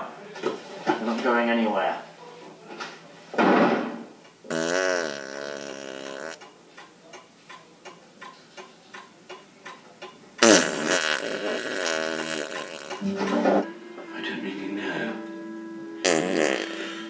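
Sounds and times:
fart sound effect: 3.8 - 6.4, 10.4 - 13.6, 16.0 - 17.0
clock ticking: 6.4 - 10.2
wavering pitched sound: 13.0 - 17.0.

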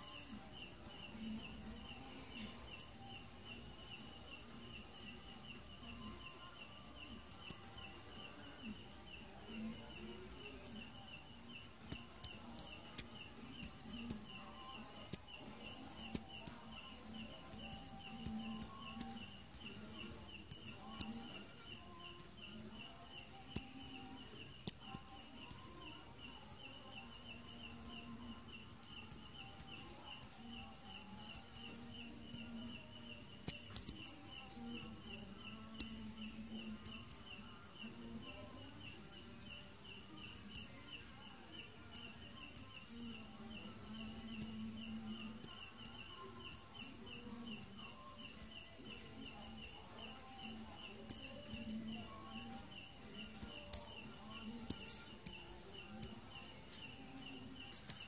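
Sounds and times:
insects chirping: 0.0 - 58.0
sharp clicks: 7.3 - 7.9, 15.1 - 32.6, 33.3 - 37.4, 43.9 - 48.6, 49.4 - 58.0.

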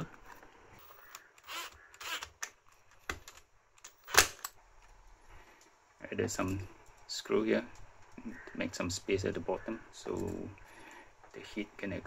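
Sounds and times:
handling small parts: 0.0 - 5.8
screwdriver turning a screw: 0.8 - 2.5.

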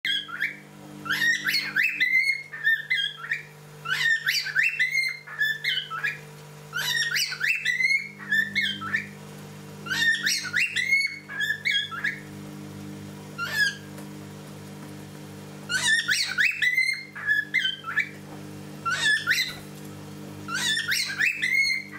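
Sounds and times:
cockatiel whistling a tune: 0.1 - 9.2, 9.8 - 12.2, 13.4 - 13.9, 15.7 - 18.2, 18.8 - 19.6, 20.5 - 21.9
steady low hum: 0.1 - 21.9.

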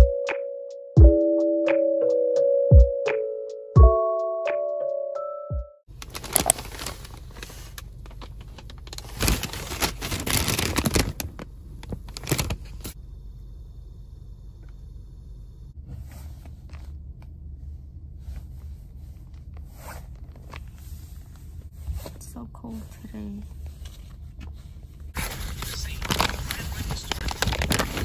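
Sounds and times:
paper bags crinkling: 5.9 - 13.0, 25.2 - 28.0
car cabin rumble: 5.9 - 28.0
clothing rustling: 6.0 - 12.9.

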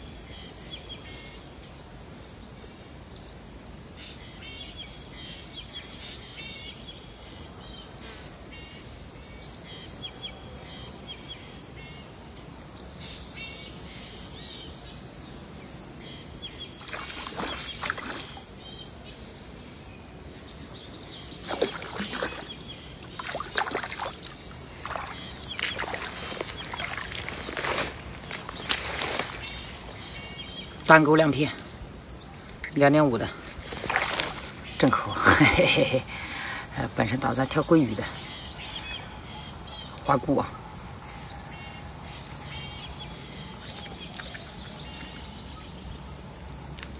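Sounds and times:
insects chirring: 0.0 - 46.9
fish splashing at water surface: 16.8 - 18.4, 21.4 - 27.8, 33.7 - 34.5.

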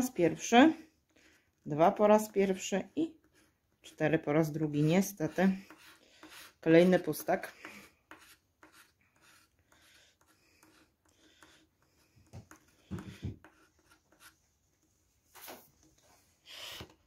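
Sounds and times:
scratch card being scratched: 4.7 - 14.4.

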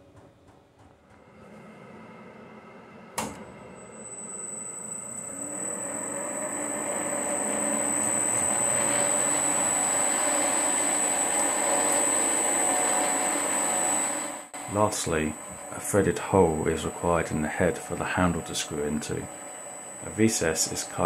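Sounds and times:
metal lathe whining: 1.3 - 21.0.

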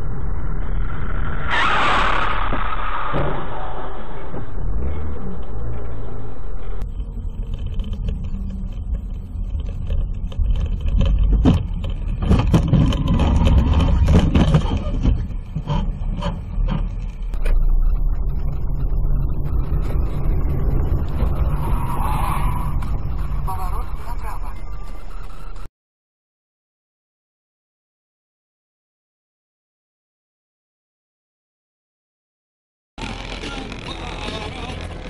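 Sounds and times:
vehicle engine and road noise: 0.0 - 25.7, 33.0 - 35.0.

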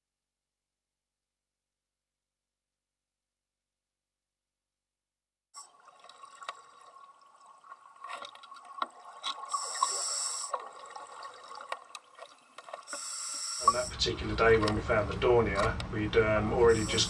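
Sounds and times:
underwater clicking and crackling: 5.6 - 15.9
breath hissing through regulator: 9.4 - 10.6, 12.8 - 14.0, 16.7 - 17.0.

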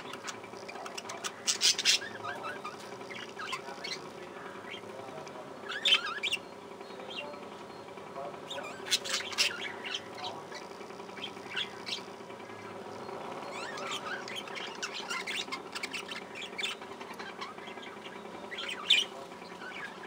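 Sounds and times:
budgerigars chattering: 0.0 - 20.0.

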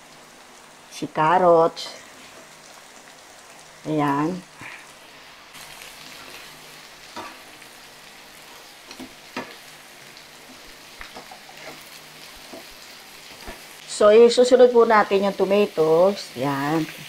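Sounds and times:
vegetables sizzling in oil: 0.0 - 17.0
spatula scraping and knocking pan: 7.0 - 7.5, 10.4 - 13.7.

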